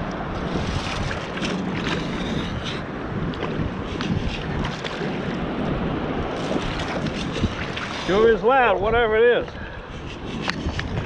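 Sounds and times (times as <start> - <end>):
water sloshing and splashing: 0.0 - 8.6
wind noise on microphone: 0.0 - 11.0.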